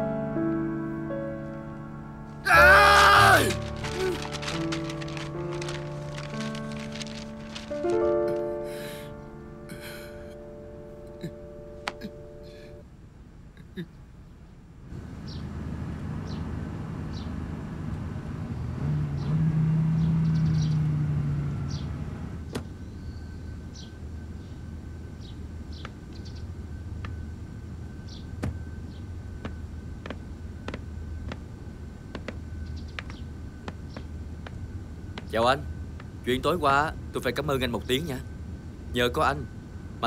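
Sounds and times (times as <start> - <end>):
faint steady high tone: 8.2 - 13.1, 22.8 - 40.0.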